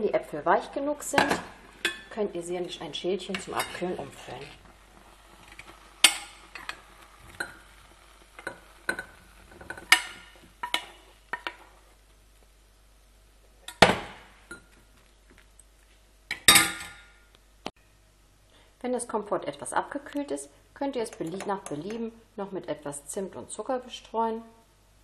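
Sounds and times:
metal spoon scraping a pot: 0:01.0 - 0:11.8.

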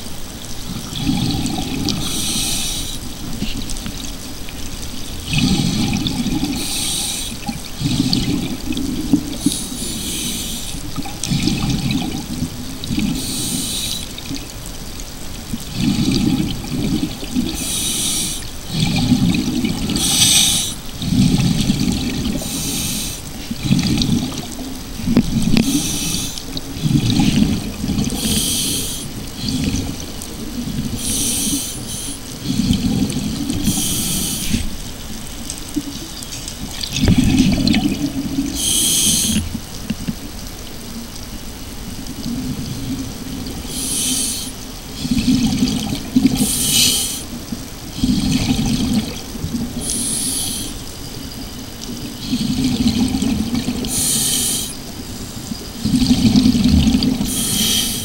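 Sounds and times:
exhaled bubbles rumbling: 0:00.0 - 0:58.0
regulator air hiss: 0:02.0 - 0:03.1, 0:06.6 - 0:07.4, 0:09.4 - 0:10.8, 0:13.2 - 0:14.2, 0:17.6 - 0:18.5, 0:20.0 - 0:20.8, 0:22.4 - 0:23.2, 0:25.6 - 0:26.5, 0:28.2 - 0:29.1, 0:30.9 - 0:32.3, 0:33.6 - 0:34.8, 0:38.5 - 0:39.5, 0:43.7 - 0:44.6, 0:46.4 - 0:47.3, 0:49.8 - 0:50.9, 0:53.9 - 0:55.4, 0:57.3 - 0:58.0.

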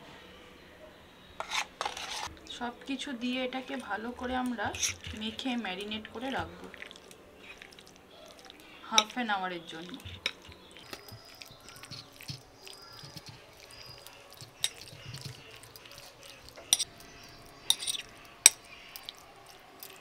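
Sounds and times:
spoon scraping in marinade: 0:01.4 - 0:02.3, 0:03.6 - 0:09.2, 0:09.8 - 0:20.0
spoon clinking against ceramic bowl: 0:08.9 - 0:09.2, 0:09.9 - 0:16.9, 0:17.6 - 0:19.2.

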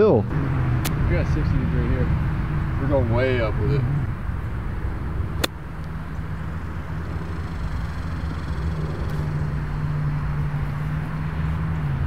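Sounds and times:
steady low hum: 0:00.2 - 0:12.0
golf club striking ball: 0:05.3 - 0:06.6.

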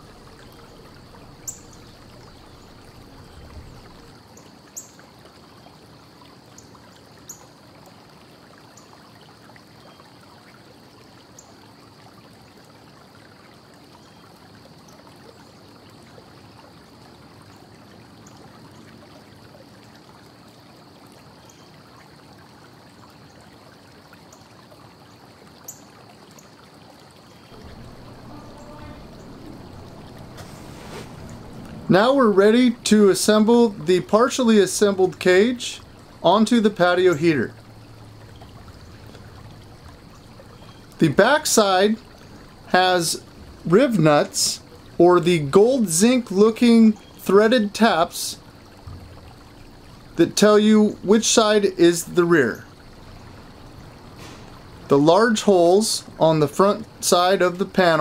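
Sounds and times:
low background hiss: 0:00.0 - 0:58.0
faint high whine: 0:27.5 - 0:44.3.

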